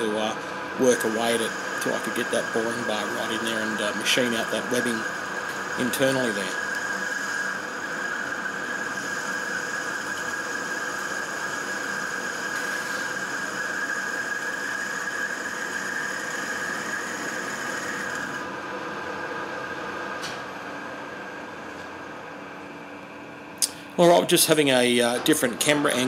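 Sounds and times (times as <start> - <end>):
lathe running: 0.0 - 19.9, 24.0 - 26.0
high-pitched cutting squeal: 0.8 - 18.4.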